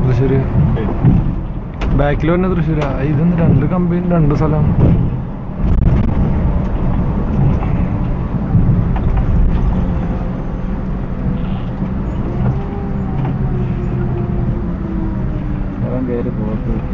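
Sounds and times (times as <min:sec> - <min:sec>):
bus diesel engine rumble: 0:00.0 - 0:16.9
road noise: 0:00.0 - 0:16.9.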